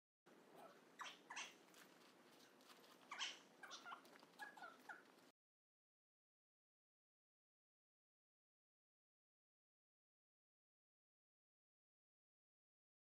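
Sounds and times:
small animal chirping: 0:00.5 - 0:05.3
short squeaky calls: 0:00.6 - 0:01.7, 0:03.0 - 0:05.1.

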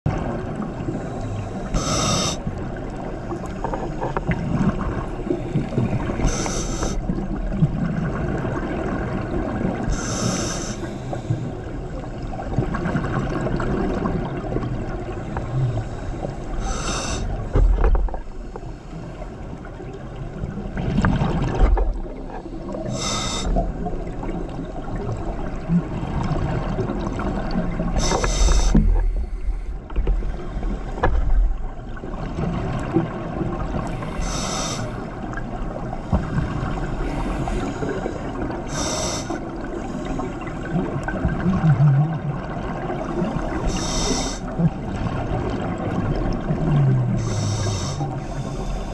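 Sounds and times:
steady low underwater rumble: 0:00.1 - 0:48.9
hissing bursts of exhaled bubbles: 0:00.9 - 0:02.5, 0:05.5 - 0:07.2, 0:09.8 - 0:11.5, 0:16.6 - 0:17.4, 0:22.7 - 0:23.7, 0:34.0 - 0:35.0, 0:38.7 - 0:40.4, 0:43.2 - 0:44.5, 0:47.1 - 0:48.9.

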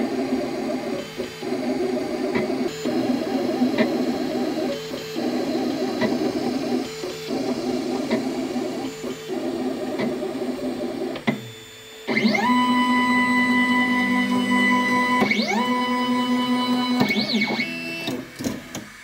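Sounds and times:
steady hum: 0:00.0 - 0:18.6
printer stepper motors buzzing: 0:00.0 - 0:19.0.

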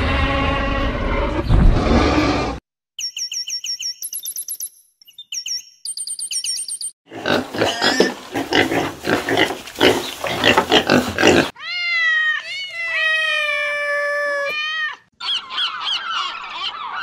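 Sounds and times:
rapid high-pitched chirps: 0:03.0 - 0:07.0
piglets grunting and squealing: 0:07.1 - 0:11.6.

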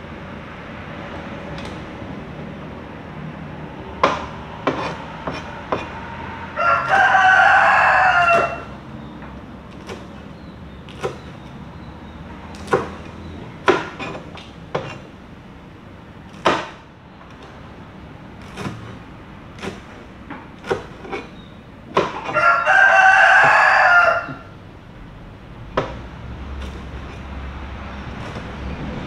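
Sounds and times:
cleaver chopping on cutting board: 0:04.0 - 0:06.0, 0:09.7 - 0:10.3, 0:10.9 - 0:11.5, 0:12.5 - 0:15.2, 0:16.3 - 0:17.5, 0:18.4 - 0:22.4, 0:28.2 - 0:28.6
rooster crowing: 0:05.4 - 0:09.1, 0:22.0 - 0:24.6.

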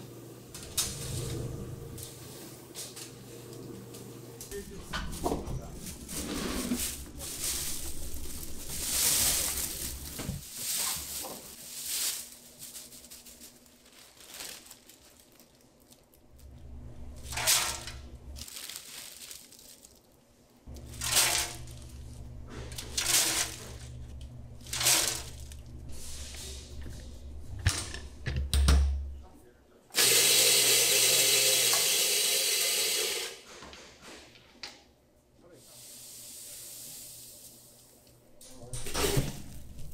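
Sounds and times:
low machine hum: 0:00.0 - 0:10.4, 0:12.4 - 0:18.4, 0:20.4 - 0:29.6
dry flakes rustling and crackling: 0:05.1 - 0:16.6, 0:17.2 - 0:26.3.

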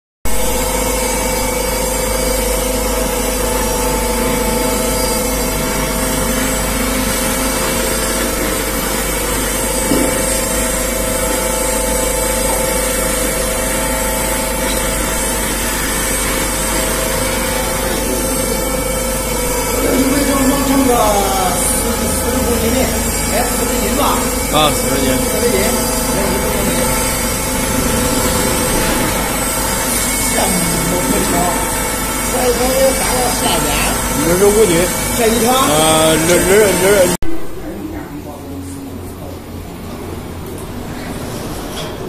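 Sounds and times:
oil filter motor hum and whine: 0:00.3 - 0:42.0.

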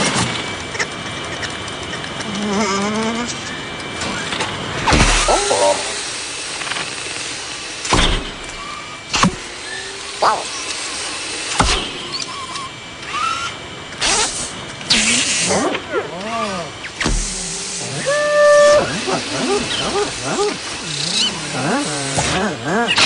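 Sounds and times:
mechanical whirs: 0:00.0 - 0:23.0
shop vacuum hissing: 0:04.9 - 0:15.8, 0:16.4 - 0:23.0
chirping electronic tones: 0:05.1 - 0:06.0, 0:10.2 - 0:10.7.

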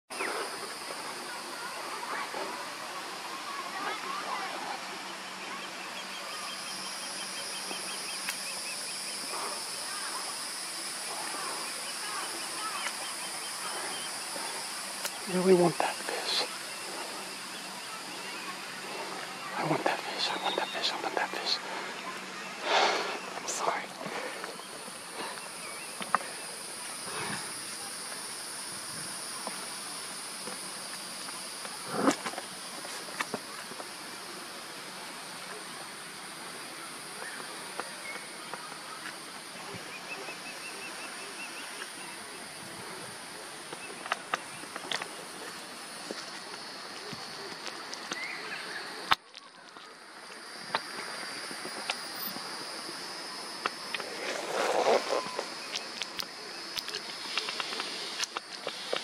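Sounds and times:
insect chorus: 0:00.1 - 0:59.0
faint clicks: 0:53.6 - 0:59.0.

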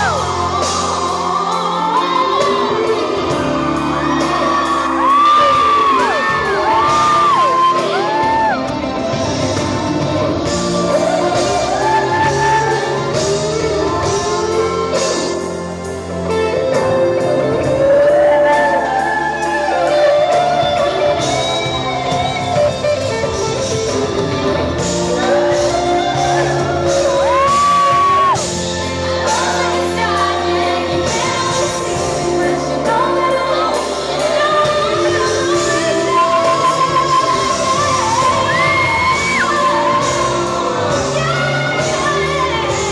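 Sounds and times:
backing singer: 0:00.0 - 0:42.9
drums: 0:00.0 - 0:42.9
electric guitar: 0:00.0 - 0:42.9
woman singing lead: 0:00.0 - 0:42.9.

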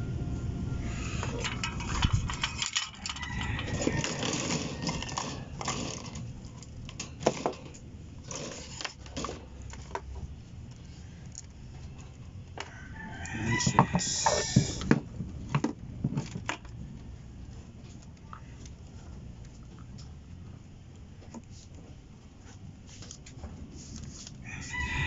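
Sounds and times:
metal tools clinking on a workbench: 0:01.2 - 0:06.3.

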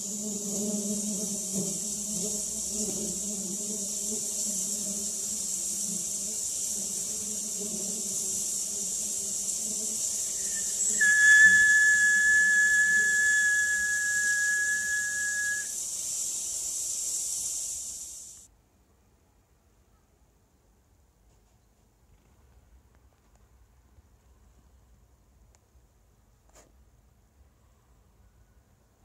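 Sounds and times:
bees buzzing through speakers: 0:00.0 - 0:15.7
steady high hiss: 0:00.0 - 0:18.5
high-pitched whistle tone: 0:10.2 - 0:15.8.

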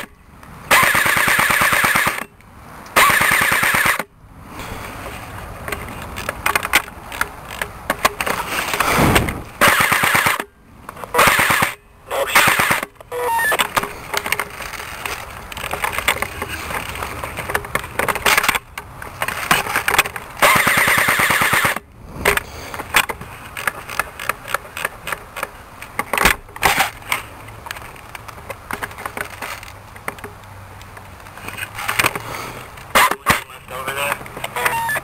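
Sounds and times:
handling clicks and rustling: 0:00.0 - 0:35.0
airsoft gun full-auto burst: 0:00.7 - 0:02.2, 0:03.0 - 0:04.0, 0:08.9 - 0:10.4, 0:11.2 - 0:11.8, 0:12.4 - 0:12.8, 0:20.4 - 0:21.8.

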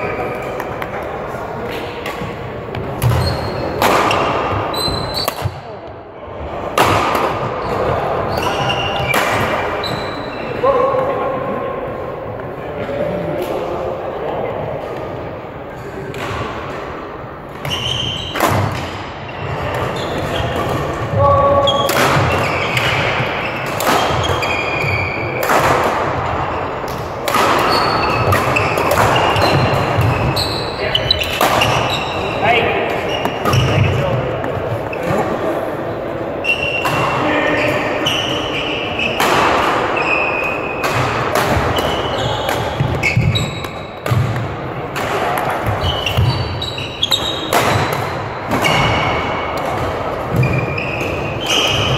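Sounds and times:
rackets hitting shuttlecock: 0:00.4 - 0:05.7, 0:06.7 - 0:09.9, 0:16.1 - 0:32.3, 0:36.6 - 0:51.9
shoe squeaks on court floor: 0:03.0 - 0:05.4, 0:07.6 - 0:09.2, 0:09.8 - 0:10.6, 0:17.6 - 0:18.5, 0:19.3 - 0:20.7, 0:21.6 - 0:25.4, 0:27.6 - 0:33.9, 0:36.4 - 0:39.2, 0:40.0 - 0:40.8, 0:41.7 - 0:44.0, 0:45.6 - 0:47.9, 0:50.4 - 0:51.9
racket striking shuttlecock: 0:31.2 - 0:31.9, 0:47.1 - 0:50.6.

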